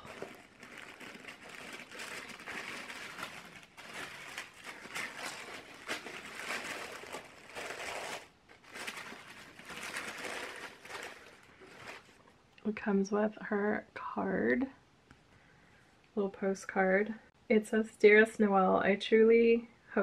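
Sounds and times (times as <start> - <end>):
tissue paper rustling and crinkling: 0.0 - 12.2.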